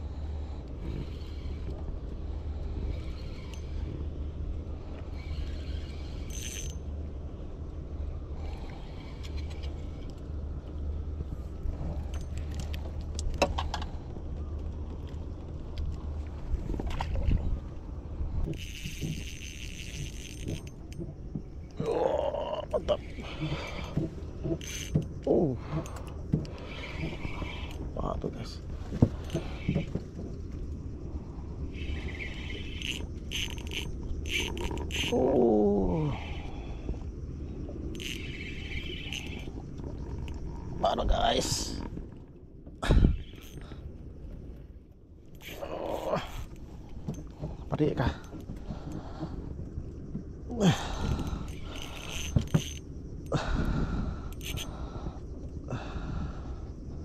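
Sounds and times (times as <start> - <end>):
insects chirping: 0.0 - 57.0
low steady hum: 0.0 - 57.0
fishing reel clicks: 2.9 - 3.9, 5.1 - 6.8, 18.5 - 20.9, 24.6 - 25.0, 31.7 - 35.2, 37.9 - 39.6, 43.1 - 43.6, 51.1 - 52.8, 54.3 - 54.7.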